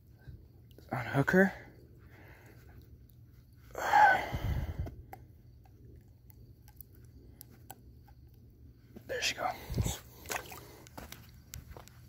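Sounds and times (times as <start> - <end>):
person sighing loudly: 3.7 - 4.9.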